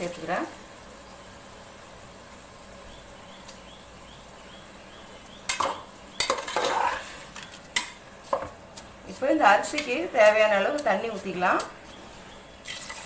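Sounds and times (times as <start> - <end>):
metal ladle scraping a pot: 6.2 - 8.0.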